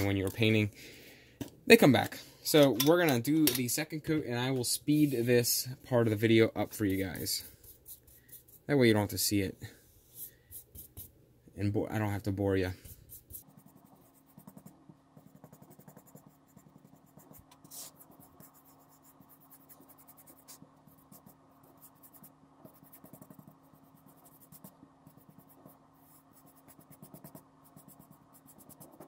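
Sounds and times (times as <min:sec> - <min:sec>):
paintbrush scratching on foam: 0:06.6 - 0:11.1, 0:12.4 - 0:29.0.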